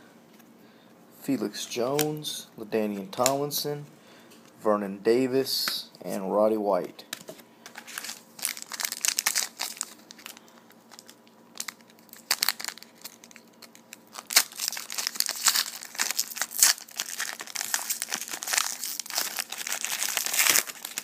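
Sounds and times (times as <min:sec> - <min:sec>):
foil wrapper tearing and crinkling: 0:07.8 - 0:21.0.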